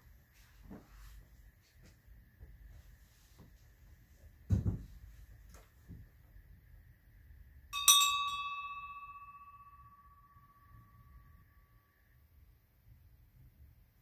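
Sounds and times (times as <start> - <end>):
small metal bell ringing: 7.7 - 11.8.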